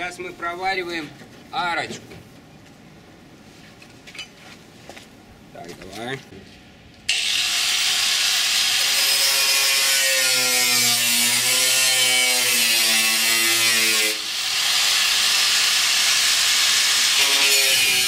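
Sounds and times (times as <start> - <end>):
angle grinder grinding steel: 7.1 - 18.0.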